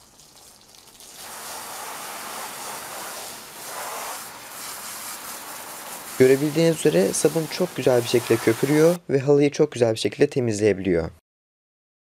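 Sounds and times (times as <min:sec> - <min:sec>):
water splashing onto rug: 0:00.0 - 0:09.0.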